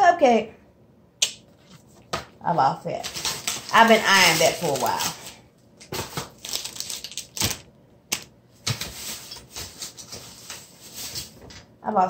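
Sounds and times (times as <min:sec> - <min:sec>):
packaging crinkling: 0:03.0 - 0:11.4.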